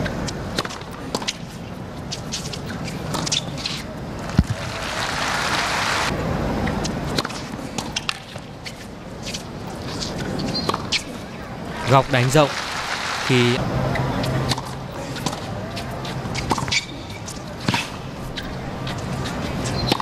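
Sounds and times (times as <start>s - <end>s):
crowd noise: 0.0s - 20.0s
crowd applause: 4.2s - 6.1s, 11.7s - 13.6s.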